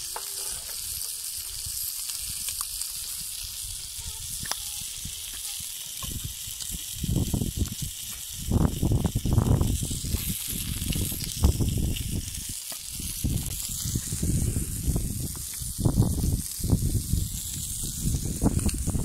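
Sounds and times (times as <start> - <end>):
chicken sizzling on hot stone: 0.0 - 19.0
wind rumbling on microphone: 0.8 - 19.0.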